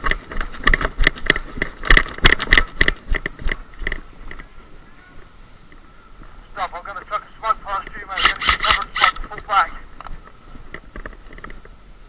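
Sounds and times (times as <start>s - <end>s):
gear rattling: 0.0s - 4.5s
running footsteps on dry leaves: 0.0s - 5.2s.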